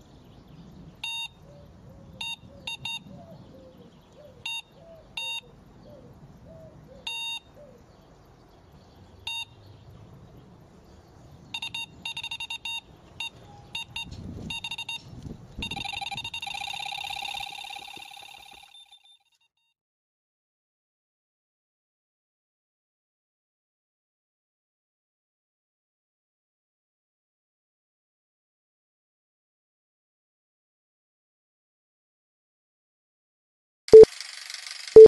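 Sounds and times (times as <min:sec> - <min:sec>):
electronic beeps: 0:01.0 - 0:01.4, 0:02.2 - 0:03.1, 0:04.5 - 0:05.4, 0:07.1 - 0:07.4, 0:09.3 - 0:09.5, 0:11.6 - 0:19.3
small chirps: 0:11.6 - 0:19.5.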